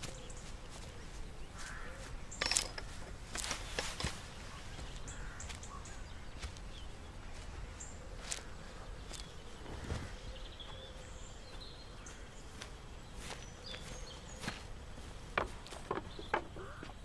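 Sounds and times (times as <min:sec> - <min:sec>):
footsteps through long grass: 0:00.0 - 0:17.0
faint bird chirps: 0:03.6 - 0:15.1, 0:15.9 - 0:17.0.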